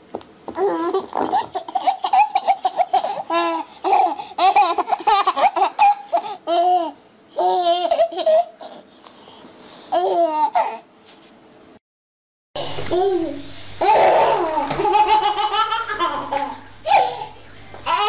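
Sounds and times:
baby laughing: 0.6s - 8.8s, 9.9s - 10.8s, 12.9s - 18.0s.

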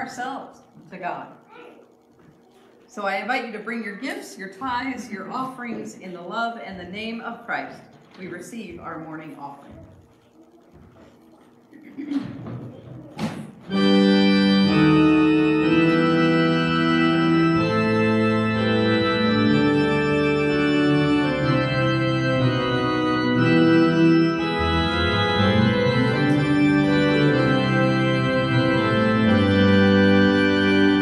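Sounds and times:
organ playing sustained chords: 13.6s - 31.0s.

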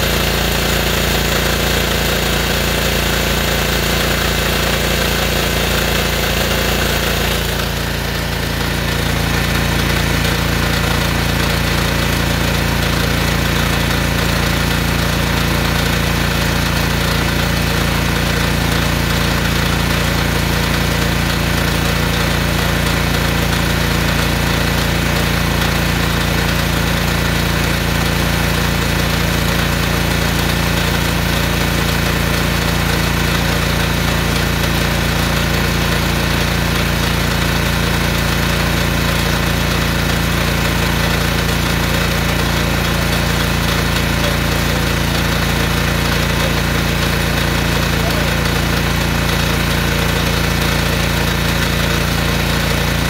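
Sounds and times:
small engine running under load: 0.0s - 53.0s.

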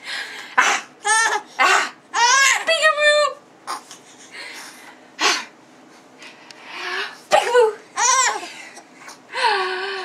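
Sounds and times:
baby laughing: 1.0s - 2.7s, 8.0s - 8.9s
baby squealing giggles: 8.0s - 8.5s.

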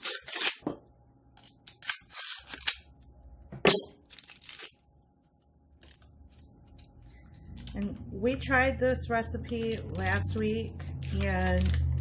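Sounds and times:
foil crinkling: 4.1s - 4.9s, 5.8s - 8.4s, 9.0s - 12.0s.

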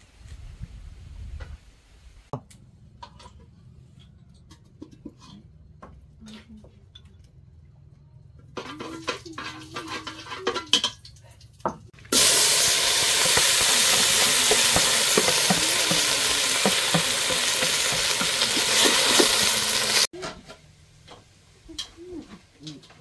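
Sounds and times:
bowl and pot clinking: 11.7s - 20.1s
greens sizzling in hot pot: 12.0s - 20.1s
utensil clicking against pot: 13.1s - 20.0s.

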